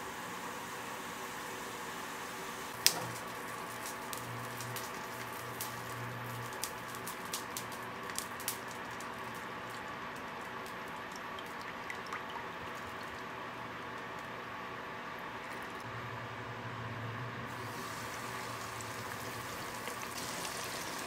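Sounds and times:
cooker humming: 0.0s - 21.0s
small ticks and crackles: 2.8s - 11.6s.

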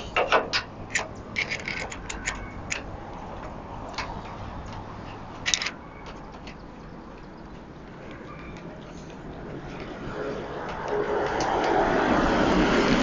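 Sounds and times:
wrench clicking on bolt: 0.2s - 2.9s, 5.5s - 5.8s.

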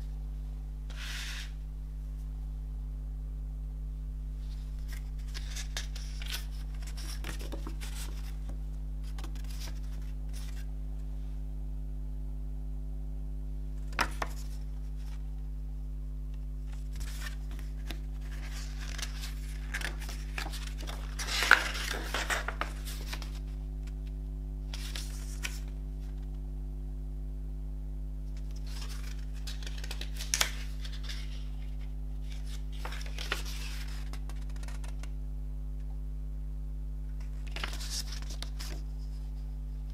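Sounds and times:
low electrical hum: 0.0s - 39.9s
paper rustling and snapping: 4.5s - 10.7s, 13.8s - 15.2s, 16.7s - 24.1s, 24.7s - 26.3s, 28.4s - 35.1s, 37.2s - 39.9s.

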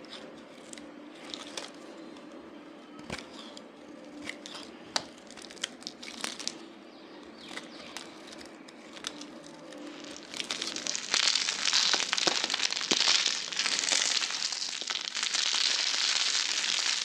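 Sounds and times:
soap cubes crushed crackling: 3.1s - 17.0s.

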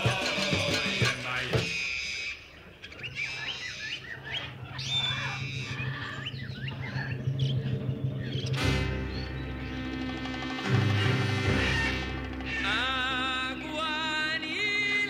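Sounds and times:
salsa music: 0.0s - 1.7s, 8.6s - 15.0s
bird chirps: 0.7s - 15.0s.

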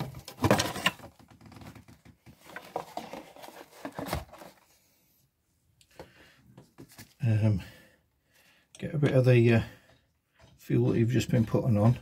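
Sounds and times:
handling rustling: 0.0s - 4.8s.

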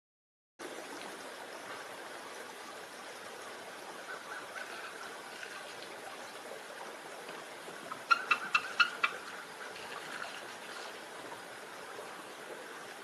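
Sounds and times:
background hiss: 0.6s - 13.0s
eagle piping calls: 7.9s - 9.4s.

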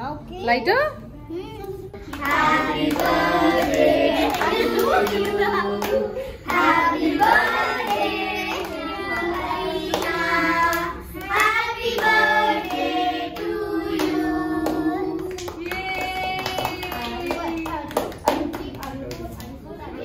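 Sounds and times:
group singing birthday song: 1.9s - 17.4s
people clapping along: 2.1s - 19.6s.

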